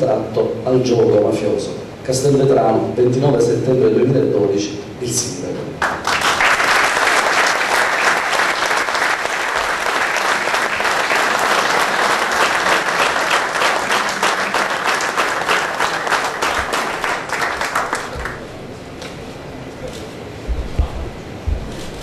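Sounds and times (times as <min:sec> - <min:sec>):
audience applauding: 0:05.8 - 0:18.5.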